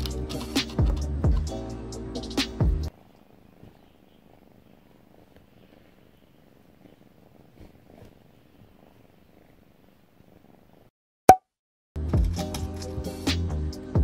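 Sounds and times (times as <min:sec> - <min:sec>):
kitten purring: 0:00.0 - 0:10.9
soft rustles of pawing: 0:02.9 - 0:10.9.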